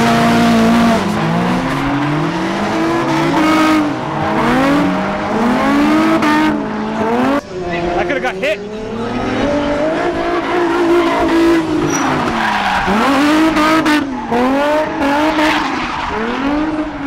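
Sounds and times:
car engine revving: 0.0 - 17.0
tyres squealing: 10.3 - 16.2.

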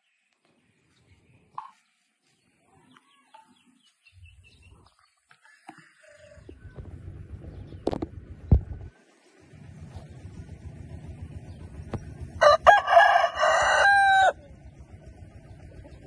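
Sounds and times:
faint small birds chirping: 0.0 - 8.2
low rumbling noise: 6.3 - 16.0.

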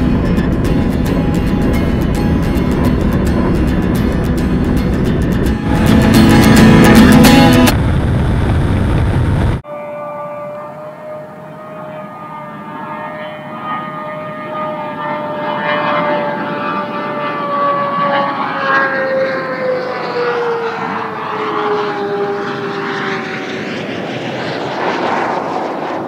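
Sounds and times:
rushing noise: 0.0 - 9.6
electric vehicle whine passing: 0.0 - 26.0.

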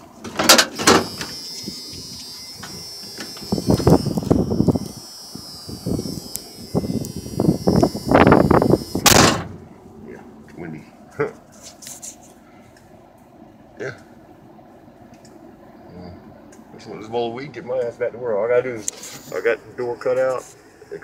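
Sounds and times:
door slamming shut: 0.3 - 1.3, 9.0 - 9.6
door-open warning tone: 0.3 - 9.6
wind buffeting microphone: 1.6 - 9.7.

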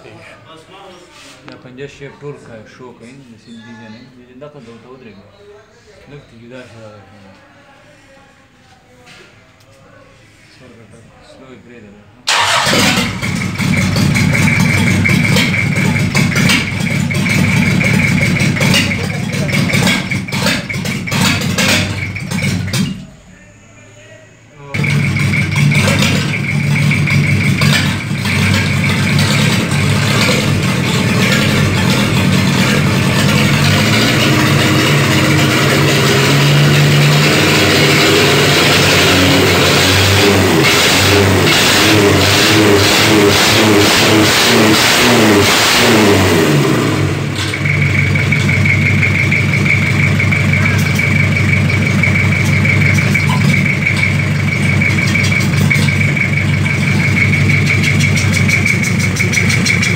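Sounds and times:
diesel engine revving and idling: 12.3 - 23.0, 24.7 - 59.9.

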